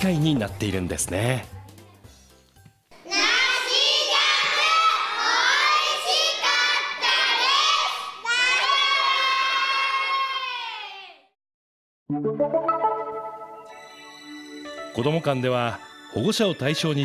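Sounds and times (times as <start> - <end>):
children shouting in chorus: 3.0 - 11.2.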